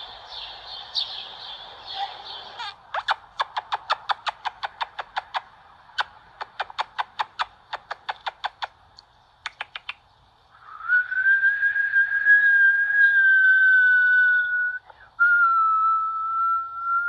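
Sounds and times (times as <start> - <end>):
steady whistled tone: 10.6 - 17.0.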